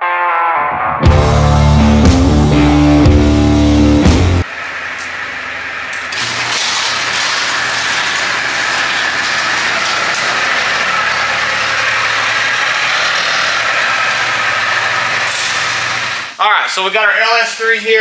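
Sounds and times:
forklift engine running: 0:01.2 - 0:16.3
thin steady whine: 0:03.4 - 0:07.3.

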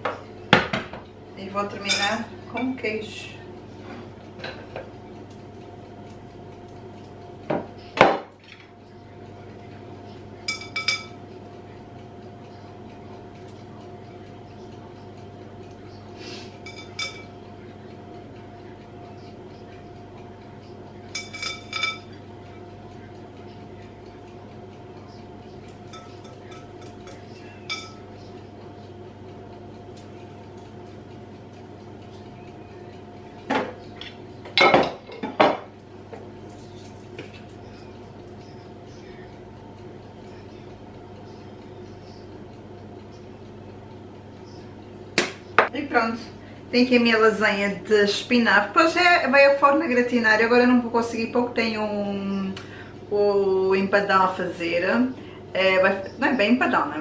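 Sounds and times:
steady low hum: 0:00.0 - 0:57.0
crockery clinking: 0:01.8 - 0:02.8, 0:10.4 - 0:11.2, 0:16.6 - 0:17.4, 0:21.1 - 0:22.2, 0:25.8 - 0:28.1.

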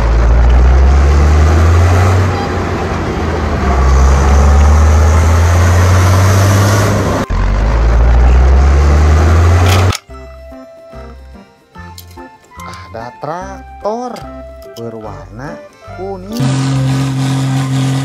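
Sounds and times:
off-road vehicle engine running: 0:00.0 - 0:10.0, 0:16.2 - 0:18.0.

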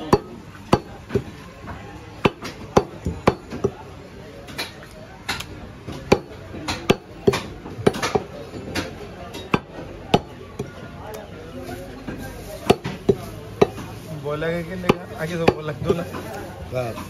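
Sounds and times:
cleaver chopping meat on wood: 0:00.0 - 0:03.8, 0:04.5 - 0:10.7, 0:12.6 - 0:13.9, 0:14.8 - 0:16.0.

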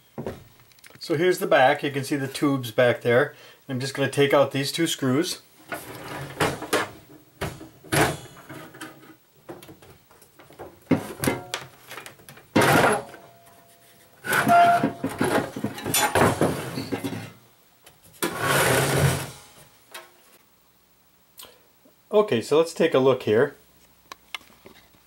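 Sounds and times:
metal clunks scrapes and rattles: 0:05.6 - 0:09.1, 0:18.2 - 0:19.5.

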